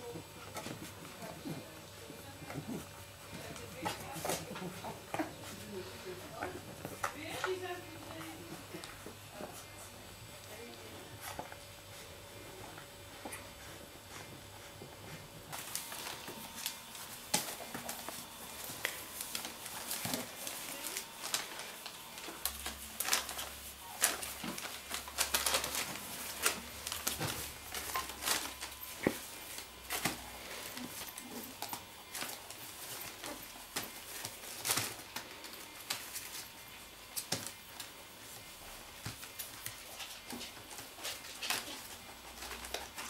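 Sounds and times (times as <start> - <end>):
puppy claws pattering: 0.1 - 9.7, 12.6 - 43.0
paper crinkling and rustling: 15.4 - 43.0.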